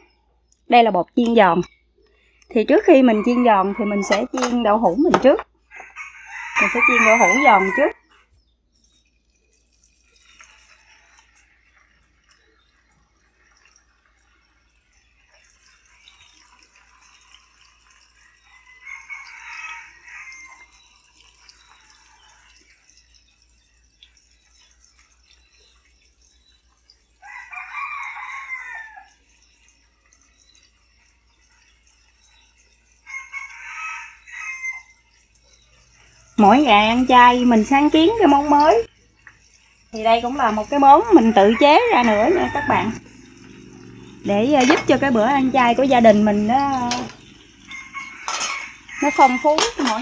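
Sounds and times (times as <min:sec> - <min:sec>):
rooster crowing: 0:02.9 - 0:04.6, 0:05.7 - 0:08.0, 0:18.4 - 0:20.8, 0:27.2 - 0:29.2, 0:33.0 - 0:35.1, 0:40.2 - 0:50.0
tofu sizzling in a pan: 0:08.9 - 0:50.0.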